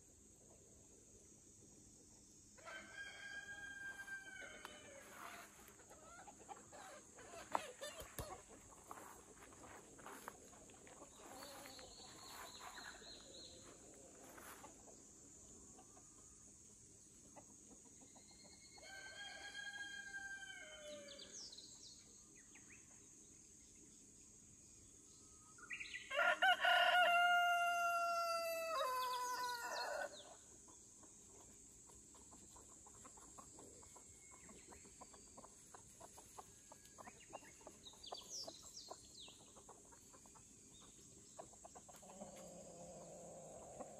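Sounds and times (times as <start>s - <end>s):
rooster crowing: 2.6s - 5.6s, 18.8s - 21.3s, 26.1s - 30.2s
hens clucking: 4.4s - 15.0s, 31.0s - 43.9s.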